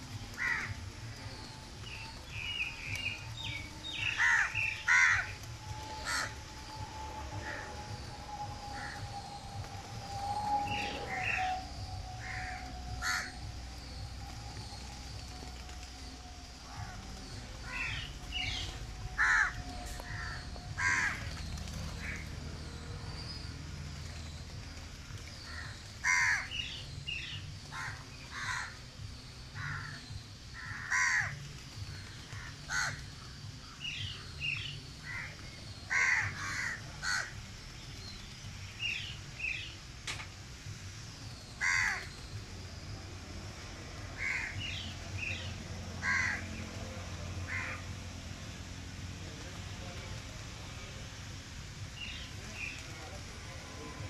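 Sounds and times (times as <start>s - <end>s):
crows cawing: 0.4s - 0.8s, 4.0s - 6.8s, 8.7s - 9.0s, 12.2s - 13.4s, 19.2s - 21.3s, 25.5s - 26.6s, 27.7s - 28.8s, 29.6s - 30.0s, 30.6s - 31.4s, 32.4s - 33.0s, 35.9s - 37.4s, 41.6s - 42.1s, 44.2s - 44.8s, 46.0s - 46.6s, 47.5s - 47.8s.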